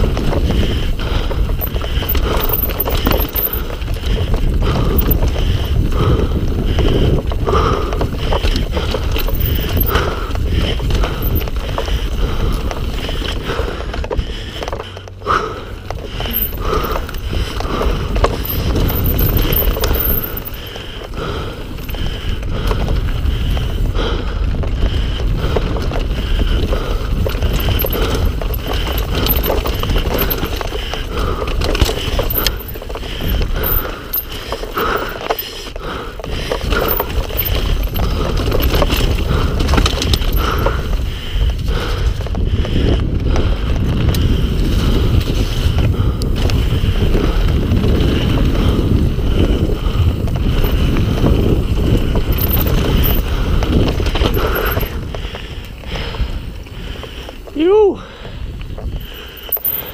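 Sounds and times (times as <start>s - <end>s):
bike chain and frame rattling: 0.0s - 59.9s
tyres crunching over gravel: 0.0s - 59.9s
wind rumbling on microphone: 0.0s - 59.9s.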